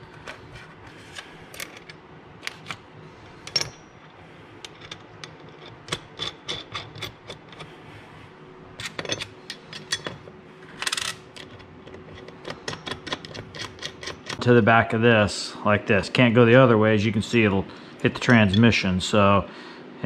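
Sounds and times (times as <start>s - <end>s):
metal parts clinking on workbench: 3.4s - 7.6s, 8.8s - 14.4s.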